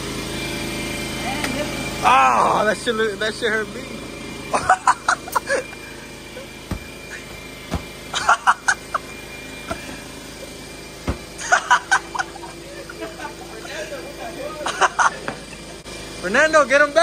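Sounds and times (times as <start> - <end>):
young men laughing and yelping: 4.5 - 9.2, 11.3 - 15.8
inflatable gloves hollow thumps: 6.7 - 8.0, 11.0 - 11.3.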